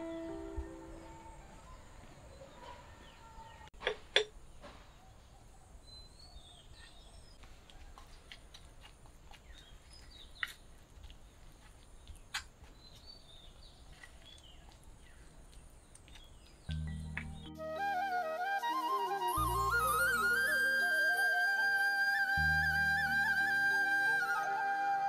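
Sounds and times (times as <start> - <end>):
small birds chirping: 4.4 - 17.6.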